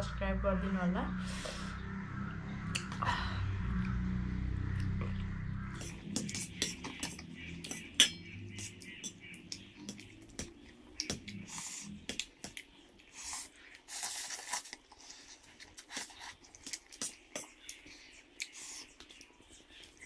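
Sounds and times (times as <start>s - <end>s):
wet chewing and lip smacks: 8.6s - 20.0s.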